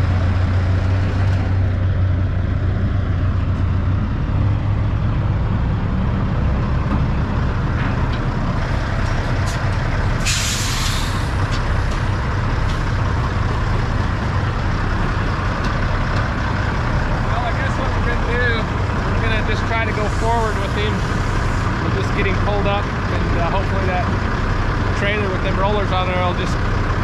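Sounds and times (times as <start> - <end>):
diesel truck engines running: 0.0 - 27.0
air brakes hissing: 10.2 - 11.4, 20.0 - 21.8.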